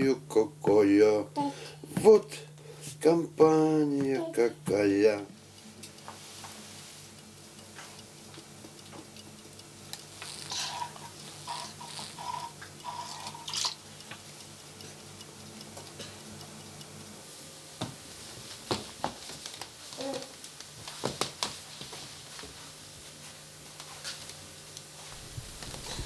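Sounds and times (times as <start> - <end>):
soft ticks: 7.2 - 17.2.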